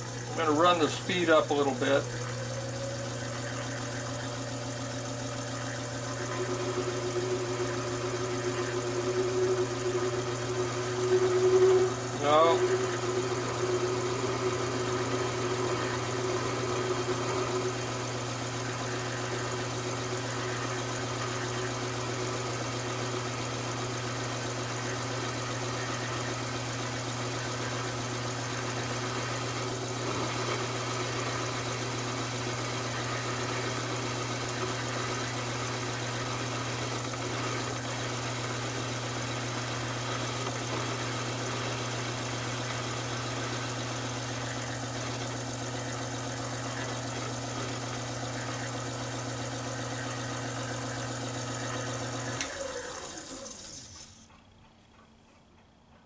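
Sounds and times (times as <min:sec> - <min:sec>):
lathe motor humming: 0:00.0 - 0:54.2.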